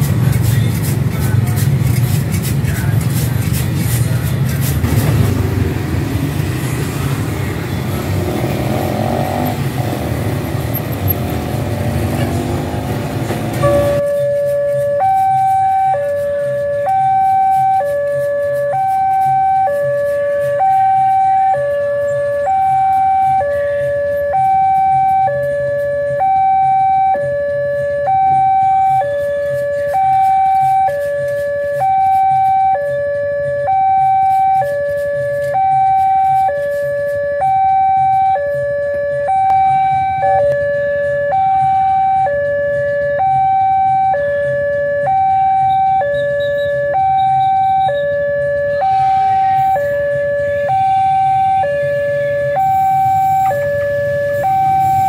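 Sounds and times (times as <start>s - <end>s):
level crossing two-tone alarm: 13.6s - 55.0s.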